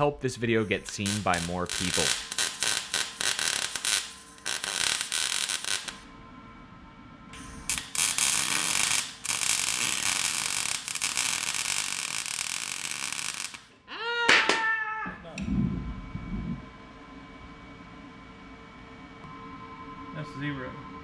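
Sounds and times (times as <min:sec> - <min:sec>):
welding arc crackling: 0:00.4 - 0:06.0, 0:07.4 - 0:13.7.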